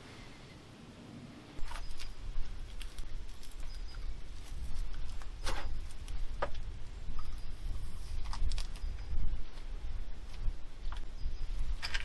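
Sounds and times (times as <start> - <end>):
steady low rumble: 0.0 - 12.0
rifle loading clicks and rustles: 11.8 - 12.0.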